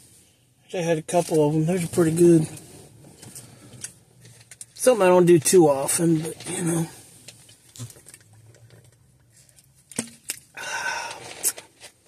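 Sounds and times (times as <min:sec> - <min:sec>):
soft handling clicks and knocks: 0:02.5 - 0:06.6.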